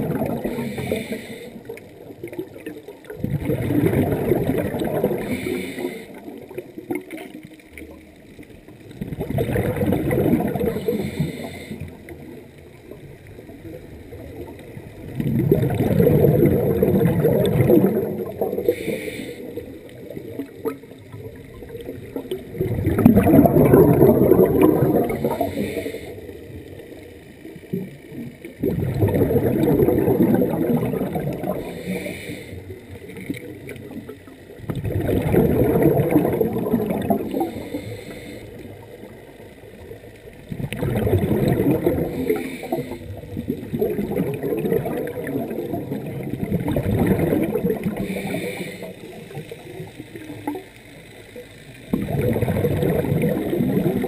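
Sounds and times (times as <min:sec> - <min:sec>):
diver exhaling bubbles: 0:00.0 - 0:07.4, 0:08.8 - 0:12.4, 0:13.6 - 0:26.2, 0:27.7 - 0:38.9, 0:40.4 - 0:50.6, 0:51.9 - 0:54.0
breathing through a regulator: 0:00.3 - 0:01.9, 0:04.8 - 0:06.6, 0:10.6 - 0:12.3, 0:18.2 - 0:20.5, 0:24.0 - 0:26.6, 0:31.2 - 0:33.2, 0:37.1 - 0:39.3, 0:41.8 - 0:43.5, 0:47.4 - 0:50.2.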